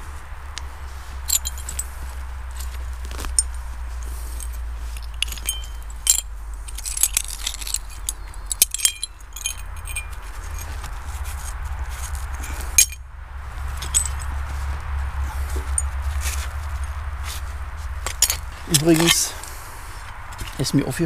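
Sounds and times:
porcelain shards clinking: 0:01.2 - 0:10.9, 0:11.9 - 0:13.0, 0:13.7 - 0:14.4, 0:15.3 - 0:17.4, 0:18.0 - 0:19.4.

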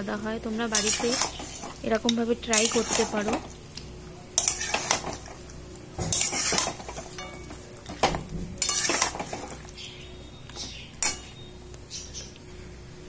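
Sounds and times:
metal spatula scraping a pan: 0:00.6 - 0:01.8, 0:02.5 - 0:03.5, 0:04.4 - 0:05.3, 0:06.0 - 0:07.6, 0:08.6 - 0:09.6, 0:10.6 - 0:11.4.

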